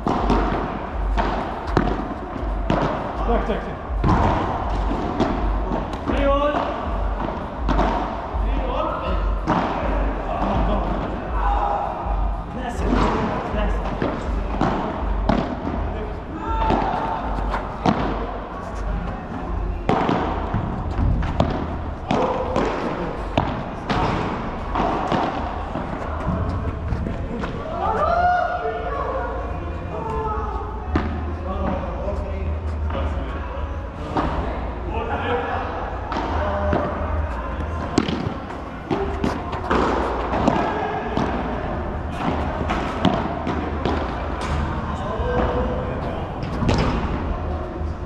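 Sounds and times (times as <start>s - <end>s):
ball hits off rackets and walls: 0.0s - 3.2s, 12.9s - 15.8s, 19.8s - 27.7s, 37.6s - 41.5s, 42.1s - 44.7s
steady low hum: 0.0s - 48.0s.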